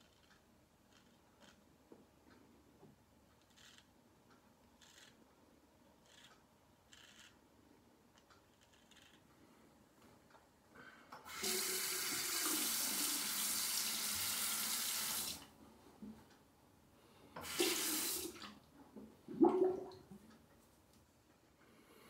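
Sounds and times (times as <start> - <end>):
sink tap running: 11.2 - 15.4, 17.4 - 18.4.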